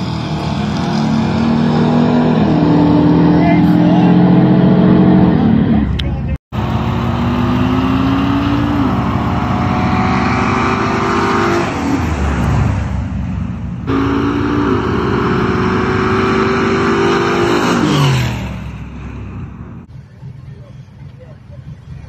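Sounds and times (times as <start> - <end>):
drag racing engines passing by: 0.0 - 22.0.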